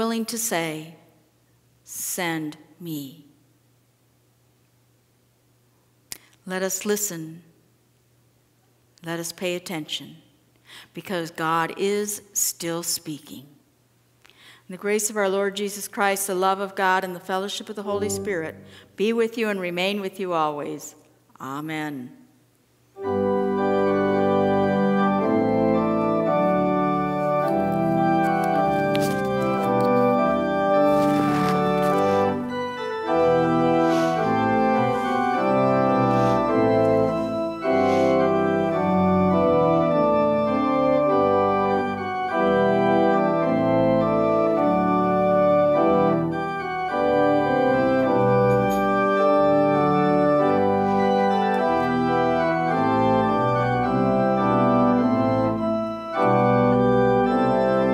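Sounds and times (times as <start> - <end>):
organ playing sustained chords: 17.8 - 19.0, 23.0 - 57.9.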